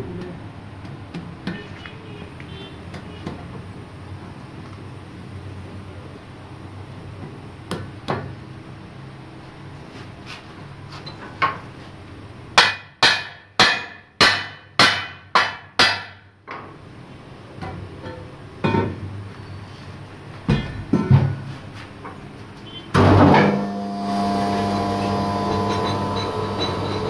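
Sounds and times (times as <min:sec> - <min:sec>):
hammer striking steel wheel rim: 0:12.6 - 0:16.3, 0:23.0 - 0:27.0.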